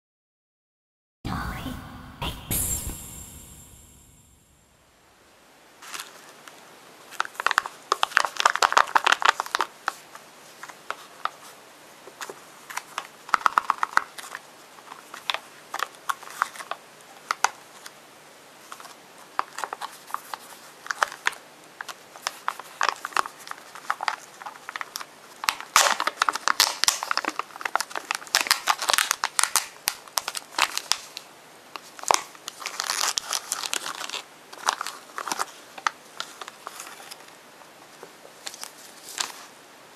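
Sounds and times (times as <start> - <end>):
plastic wrapper crinkling and tearing: 7.1 - 11.5, 12.2 - 17.9, 18.7 - 37.3.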